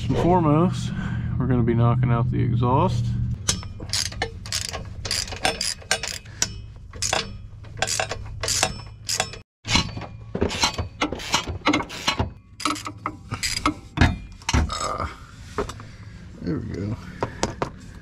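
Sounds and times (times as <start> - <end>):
ratchet wrench clicking: 3.5 - 9.4.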